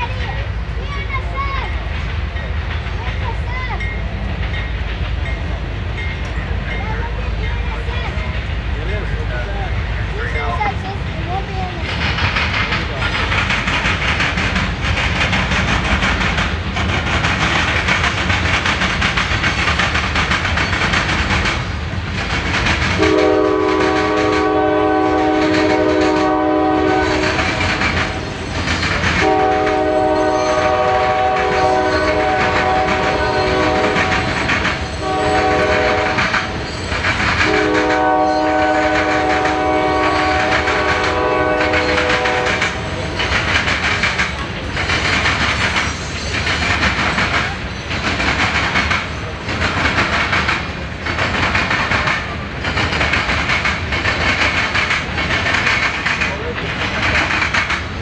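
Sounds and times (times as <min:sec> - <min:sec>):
freight train wheels on rails: 0:00.0 - 0:58.0
locomotive air horn blasts: 0:23.0 - 0:28.3, 0:29.2 - 0:34.4, 0:35.0 - 0:36.6, 0:37.4 - 0:42.9.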